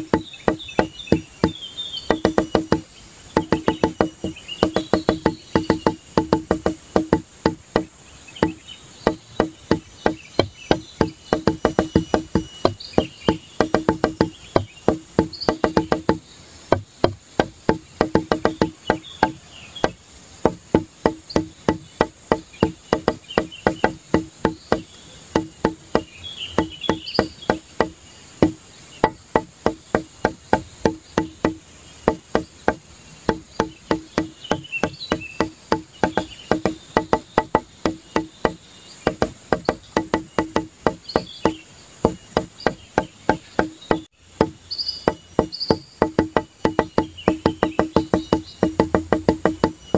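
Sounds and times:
faint high chirps: 0.0 - 16.2
rhythmic wood block clicks: 0.0 - 49.9.

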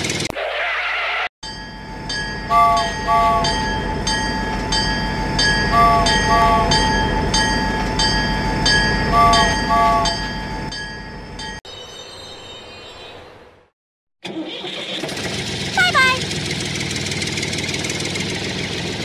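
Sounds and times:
steady electronic hum: 1.8 - 10.6.

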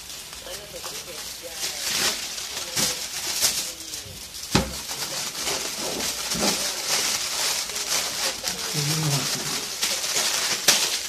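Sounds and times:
aluminium foil crinkling: 0.0 - 11.0.

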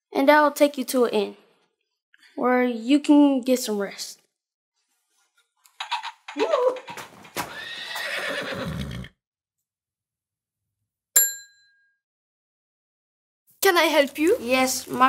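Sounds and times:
horse neighing: 5.9 - 9.2
desk service bell ding: 11.2 - 11.9.

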